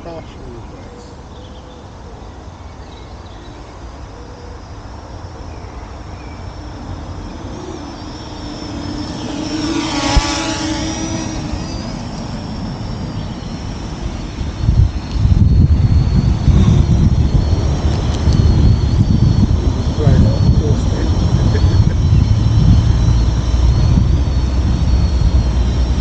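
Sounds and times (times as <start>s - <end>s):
drone propellers whining: 0.0s - 26.0s.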